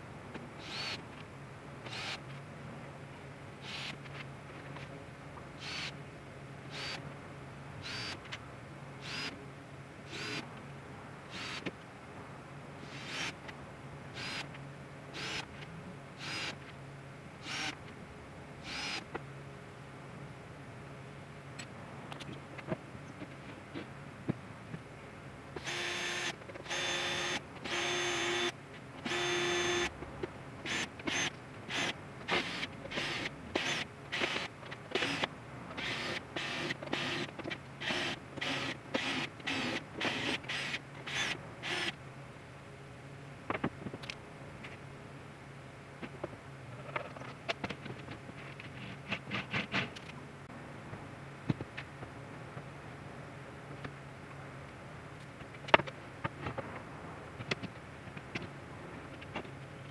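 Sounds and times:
cordless drill drilling into wood: 0.6 - 1.0, 1.9 - 2.2, 7.9 - 8.2, 11.3 - 11.6, 14.2 - 14.4, 16.2 - 16.6, 17.4 - 17.7, 18.7 - 19.0, 25.6 - 28.5, 29.1 - 29.9, 35.8 - 41.9.

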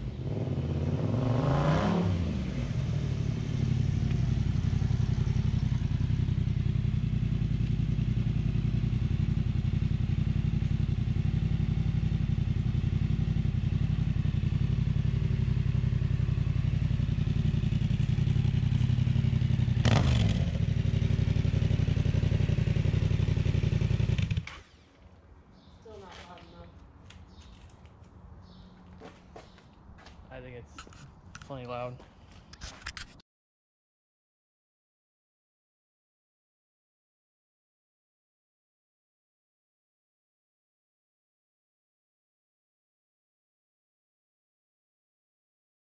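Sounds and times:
motorcycle engine idling and revving: 0.0 - 27.8.

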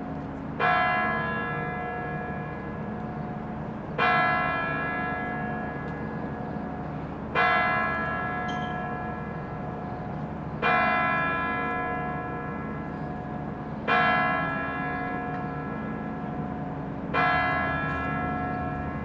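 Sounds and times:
tower bell striking: 7.4 - 9.4.

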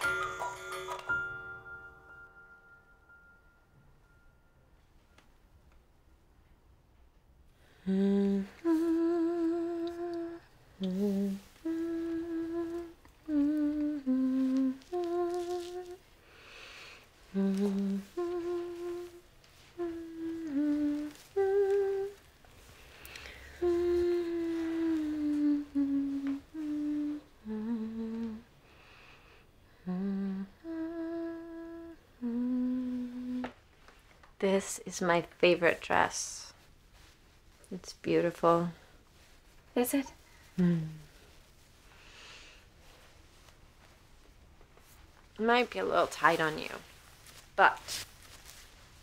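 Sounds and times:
breaths: 7.5 - 8.7, 16.2 - 17.1, 22.6 - 23.7, 28.6 - 30.0, 40.2 - 43.1
woman humming a slow melody: 7.8 - 16.0, 17.3 - 22.3, 23.3 - 28.6, 29.7 - 33.6, 40.5 - 41.3.

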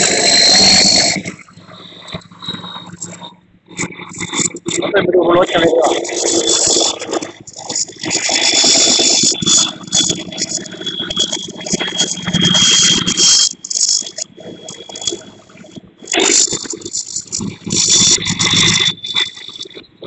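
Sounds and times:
thin high whine: 0.0 - 20.0
combine harvester rattling and hissing: 5.5 - 19.6.

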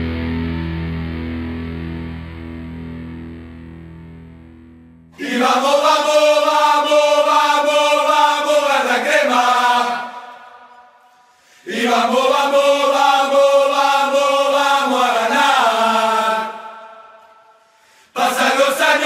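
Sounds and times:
group of voices chanting: 5.2 - 11.0, 11.6 - 17.4, 18.1 - 19.0.

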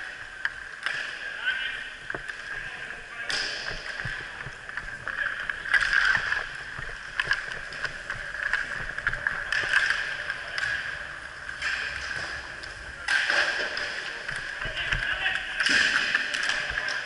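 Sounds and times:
skate wheels rolling on rink floor: 0.0 - 17.0
hockey stick and puck clicks: 0.4 - 17.0.

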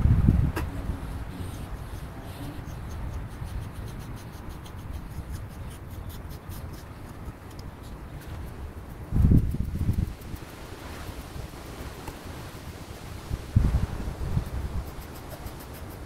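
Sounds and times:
wind noise on microphone: 0.0 - 16.0
comb raking through dog coat: 14.5 - 16.0.

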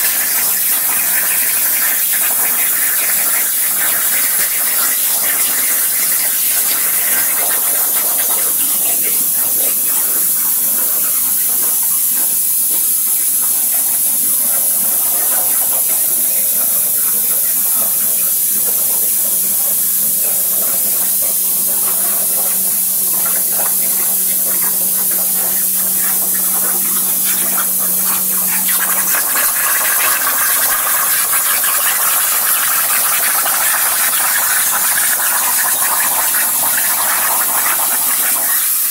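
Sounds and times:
plasma torch hissing: 18.2 - 38.9.

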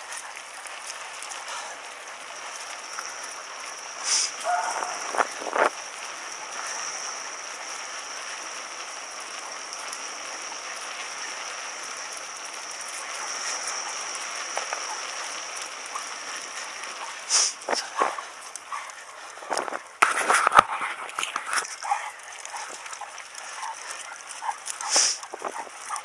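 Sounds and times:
bicycle rolling on pavement: 0.0 - 26.0.

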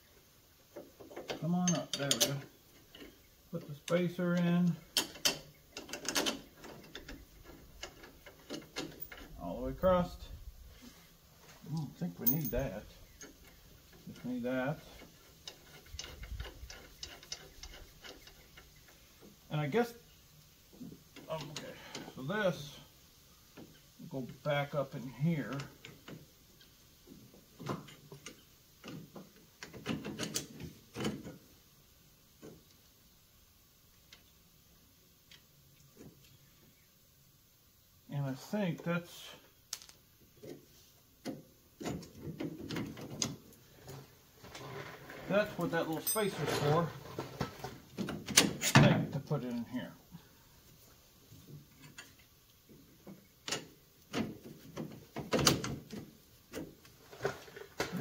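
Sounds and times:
metal parts clinking and knocking: 12.2 - 12.8, 45.5 - 46.9.

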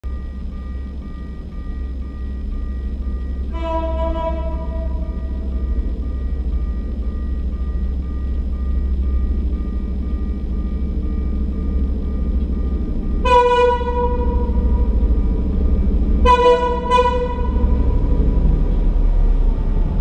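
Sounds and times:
level-crossing warning beeps: 0.0 - 20.0
low engine rumble: 0.0 - 20.0
single-note horn: 3.5 - 5.4, 13.2 - 14.8, 16.2 - 17.9.

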